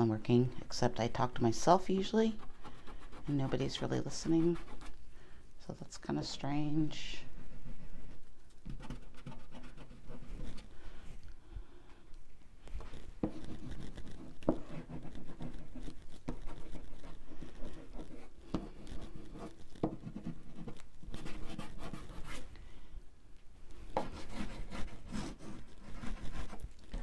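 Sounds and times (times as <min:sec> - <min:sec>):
oil pastel scratching on paper: 0:02.0 - 0:05.0, 0:07.2 - 0:10.7, 0:12.7 - 0:22.5, 0:23.9 - 0:27.0.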